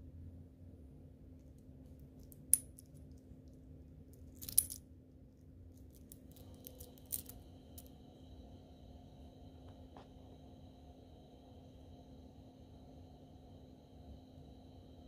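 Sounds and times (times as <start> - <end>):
metal watch bracelet clinking: 4.4 - 4.8, 5.9 - 7.4.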